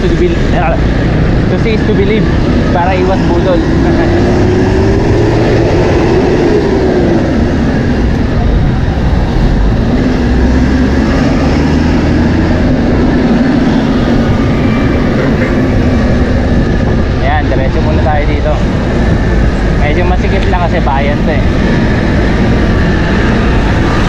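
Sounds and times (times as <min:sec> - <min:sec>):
vehicle engine hum: 0:00.0 - 0:24.0
wind and road noise on microphone: 0:00.0 - 0:24.0.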